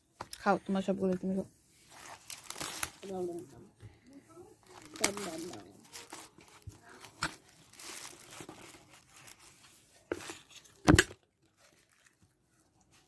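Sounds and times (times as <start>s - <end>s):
plastic packaging crinkling: 1.8s - 3.6s, 4.6s - 10.1s, 10.7s - 13.0s.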